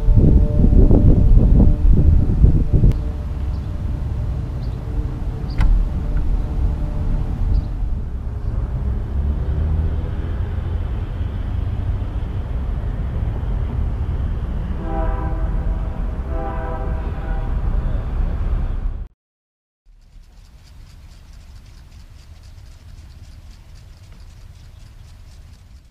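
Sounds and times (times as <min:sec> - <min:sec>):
train horn blasts: 0:00.0 - 0:08.8, 0:13.2 - 0:18.8
steady low rumble: 0:00.0 - 0:19.1, 0:19.9 - 0:25.9.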